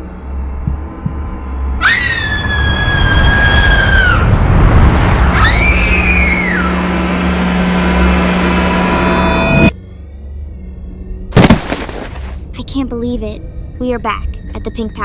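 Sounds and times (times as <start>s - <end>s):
girl screaming: 1.8s - 4.3s, 5.3s - 6.7s
loud rushing whoosh: 4.1s - 9.7s.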